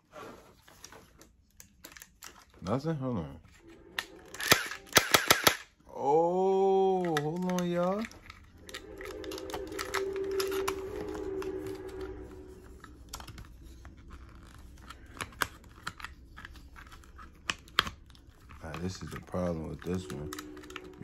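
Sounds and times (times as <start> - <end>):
plastic toy blaster clicking: 4.4 - 5.7
steady hum: 8.2 - 15.2, 19.0 - 21.0.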